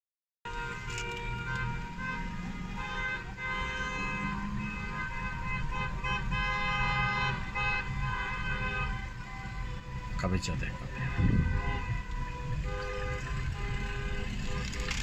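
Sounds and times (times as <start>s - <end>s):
car horns honking: 0.5s - 15.0s
passing car traffic rumble: 0.5s - 15.0s.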